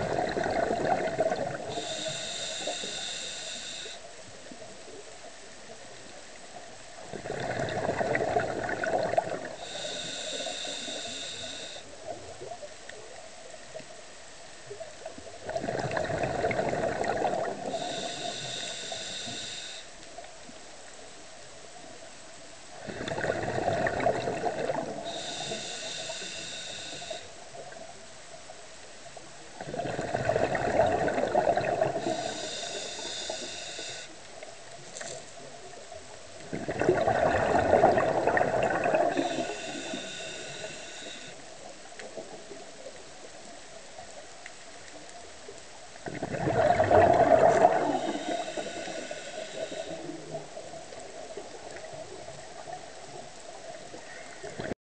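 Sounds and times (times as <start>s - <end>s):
bubbles from diver exhaling: 0.0s - 1.8s, 7.1s - 9.6s, 15.4s - 17.7s, 22.8s - 25.0s, 29.6s - 32.2s, 36.5s - 39.5s, 46.0s - 48.4s
regulator whistling hiss: 1.7s - 4.0s, 17.8s - 19.9s, 32.0s - 34.2s.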